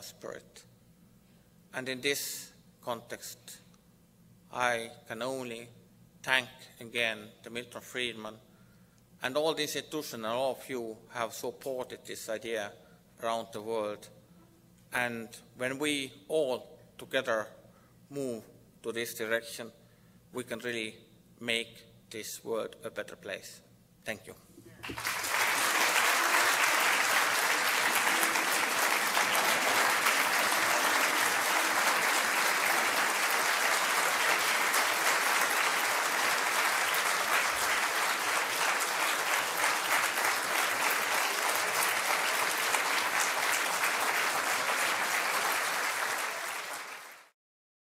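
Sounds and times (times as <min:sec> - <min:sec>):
audience applauding: 0:24.8 - 0:47.4.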